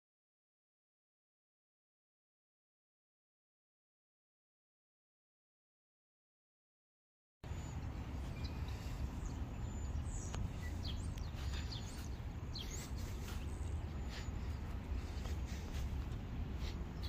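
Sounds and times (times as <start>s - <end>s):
low outdoor rumble: 7.4s - 17.0s
small birds chirping: 7.4s - 17.0s.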